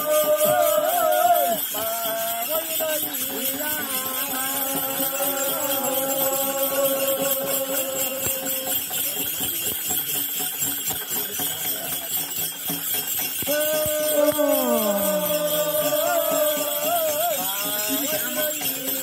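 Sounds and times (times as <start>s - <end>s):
person chanting: 0.0s - 9.0s, 13.5s - 19.0s
metal bells jangling: 0.0s - 19.0s.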